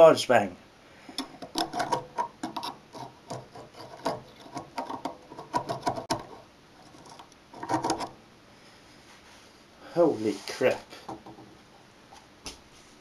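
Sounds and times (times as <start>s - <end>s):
screwdriver scraping: 1.2s - 8.1s.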